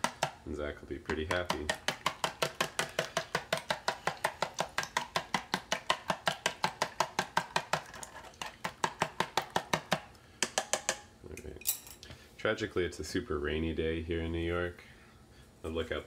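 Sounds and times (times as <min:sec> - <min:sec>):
chopsticks clicking beating eggs: 0:00.0 - 0:00.4, 0:01.1 - 0:11.0.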